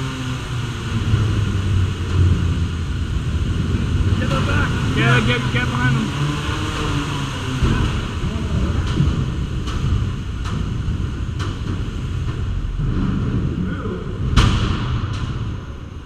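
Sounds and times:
steady low rumble: 0:00.0 - 0:16.0
loud crash: 0:07.5 - 0:16.0.

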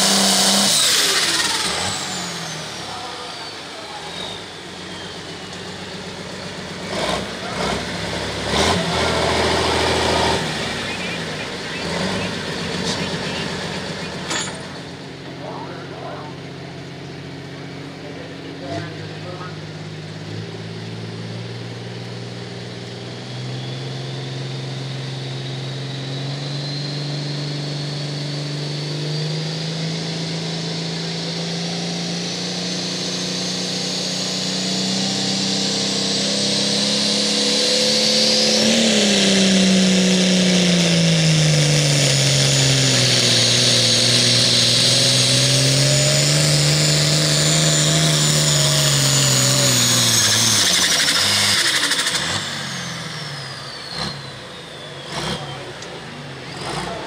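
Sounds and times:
diesel tractor engine under load: 0:00.0 - 0:57.0
high turbo whistle: 0:45.8 - 0:56.0.

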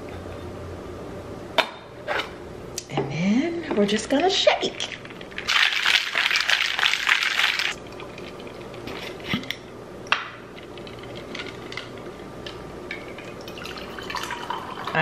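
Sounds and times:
cocktail shaker rattling: 0:04.7 - 0:09.2
drink pouring: 0:04.8 - 0:09.2, 0:12.9 - 0:15.0.

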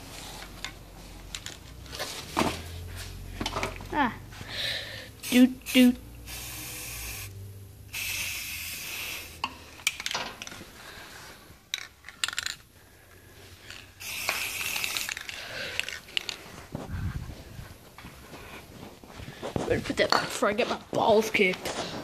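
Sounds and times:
objects rustling: 0:00.0 - 0:04.4, 0:09.7 - 0:22.0
metallic clinks and clicks: 0:11.7 - 0:12.7.

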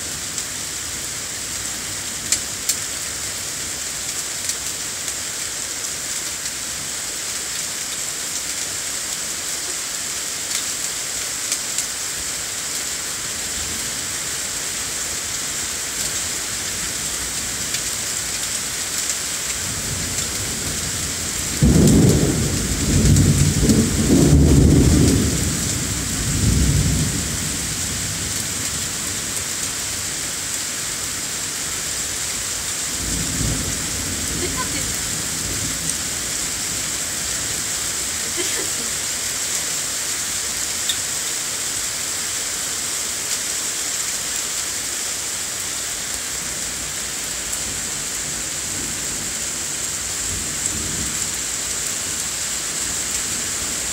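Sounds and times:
rain hissing: 0:00.0 - 0:53.9
thunder rumbling: 0:19.7 - 0:28.4.

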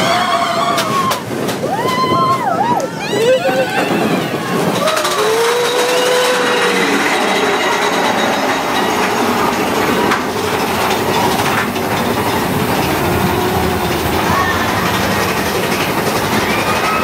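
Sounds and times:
moving vehicle running noise: 0:04.7 - 0:17.0.

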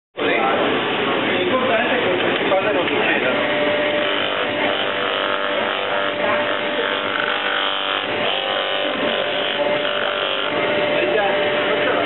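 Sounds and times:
sanding wheel motor humming: 0:03.2 - 0:12.0.

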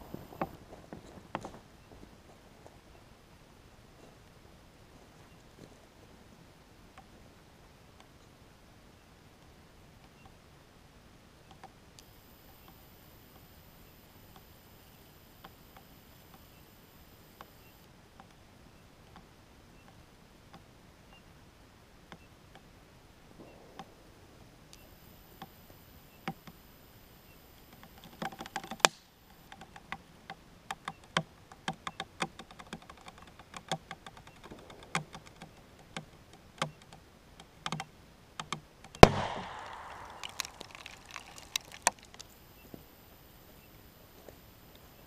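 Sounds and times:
plastic bottle ticking and crackling: 0:27.8 - 0:30.0, 0:30.7 - 0:42.4.

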